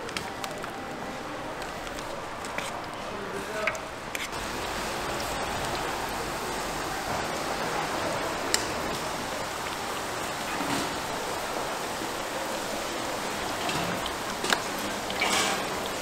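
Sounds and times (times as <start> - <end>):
oil sizzling in deep-fryer: 4.3 - 16.0.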